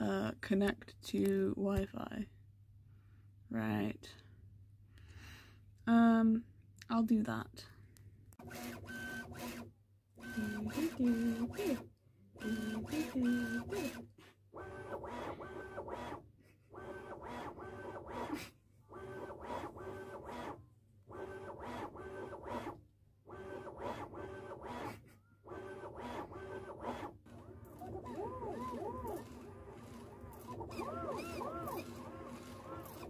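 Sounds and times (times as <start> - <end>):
stepper motors buzzing tones: 12.4 - 14.0, 25.5 - 33.0.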